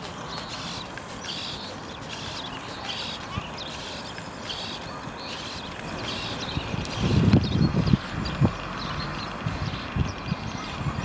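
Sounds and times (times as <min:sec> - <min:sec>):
servo motors whirring: 0:00.0 - 0:08.5.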